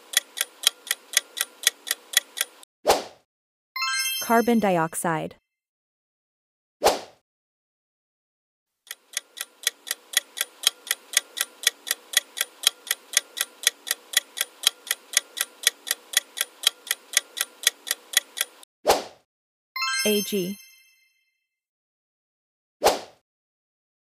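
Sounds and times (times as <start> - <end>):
countdown timer ticking: 0.0 - 2.6, 8.9 - 18.6.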